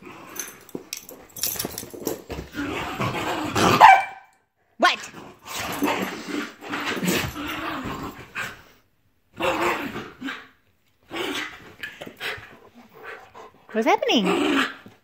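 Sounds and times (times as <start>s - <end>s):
small dog growling and barking: 2.5s - 4.2s, 5.0s - 8.6s, 9.3s - 13.0s, 14.2s - 15.0s.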